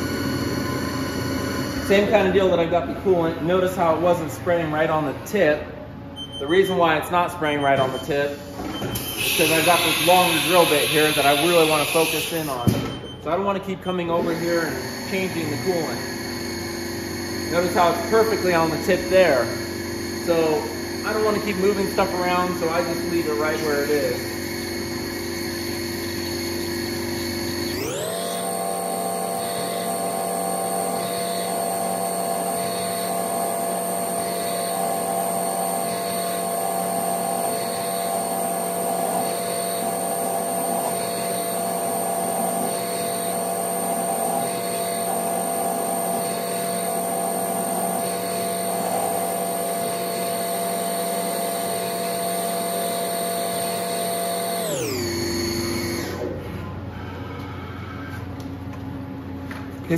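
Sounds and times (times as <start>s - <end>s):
mill spindle whine: 0.0s - 59.9s
drill bit cutting metal: 8.1s - 12.8s, 14.2s - 56.3s.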